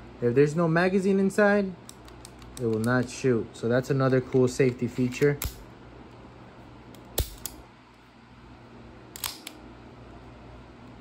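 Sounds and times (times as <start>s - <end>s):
pistol action clicking: 5.4s - 5.6s, 7.0s - 7.6s, 9.2s - 9.6s.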